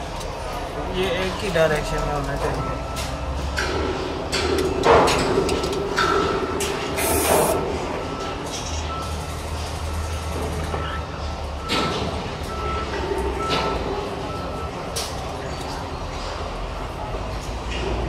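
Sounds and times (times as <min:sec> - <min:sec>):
reversing alarm beeps: 0:02.4 - 0:03.6, 0:06.2 - 0:15.8
short hissing bursts: 0:07.0 - 0:07.6.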